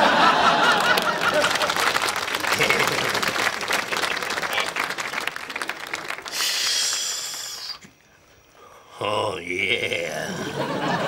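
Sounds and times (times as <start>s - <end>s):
audience laughter: 0.0s - 4.7s, 10.3s - 11.0s
audience applause: 0.0s - 7.6s
burst of hiss: 6.3s - 8.0s.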